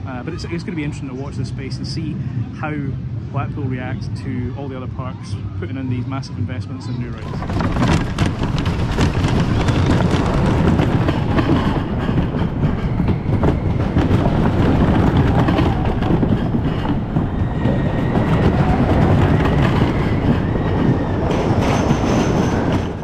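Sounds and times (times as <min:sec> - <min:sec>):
roller coaster wheels rumbling: 0:00.0 - 0:23.0
wheel squeal: 0:07.2 - 0:23.0.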